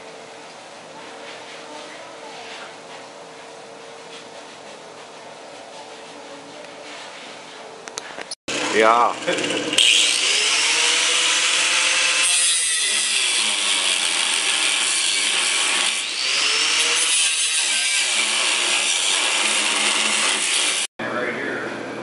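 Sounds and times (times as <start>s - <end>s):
angle grinder grinding steel: 8.5s - 20.9s.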